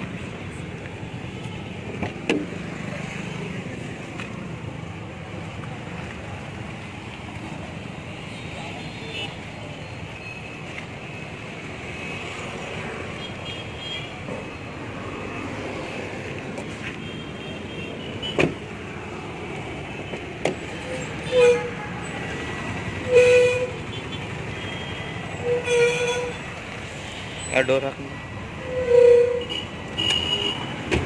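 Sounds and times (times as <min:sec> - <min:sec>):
traffic noise: 0:00.0 - 0:31.0
car horn toots: 0:24.6 - 0:26.4.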